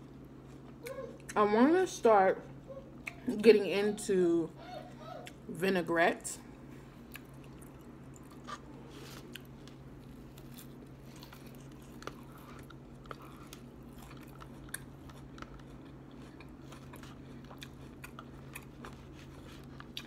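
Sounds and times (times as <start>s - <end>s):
person chewing salad: 6.6s - 20.0s.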